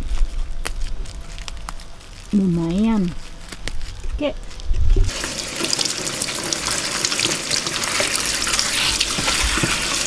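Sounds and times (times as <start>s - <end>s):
tap water running and splashing: 5.1s - 10.0s.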